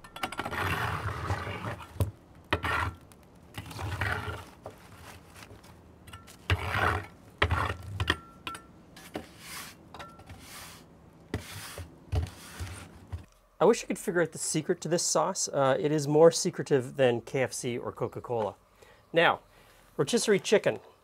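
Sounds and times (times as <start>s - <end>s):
wire brush scraping brick: 0.3s - 8.0s, 9.0s - 13.0s.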